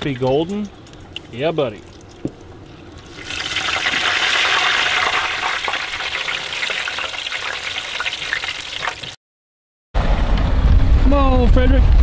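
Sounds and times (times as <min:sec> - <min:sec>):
fish deep-frying in oil: 0:00.0 - 0:09.2.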